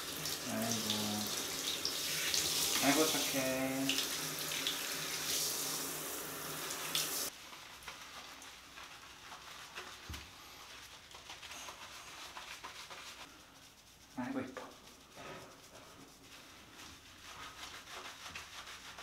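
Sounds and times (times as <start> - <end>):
wet rubbing of fur: 0.0 - 6.1, 6.8 - 19.0
shower head spraying water: 0.0 - 7.3.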